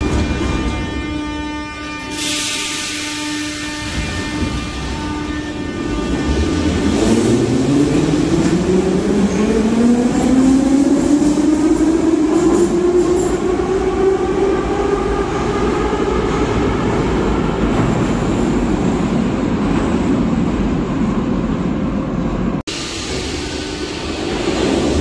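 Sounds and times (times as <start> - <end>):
train rumbling in tunnel: 0.0 - 25.0
subway train motor whine: 22.7 - 25.0.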